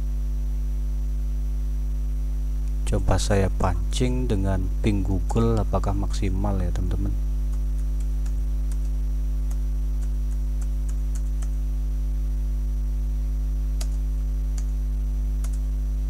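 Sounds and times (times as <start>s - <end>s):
electrical mains hum: 0.0s - 16.0s
keyboard keys clicking: 9.5s - 11.6s, 13.8s - 14.0s, 15.4s - 15.6s.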